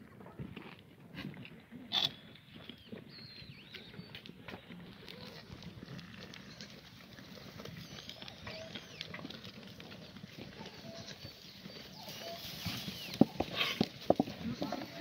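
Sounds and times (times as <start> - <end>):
rustling and patter on straw: 3.7 - 15.0
goats calling: 4.7 - 15.0.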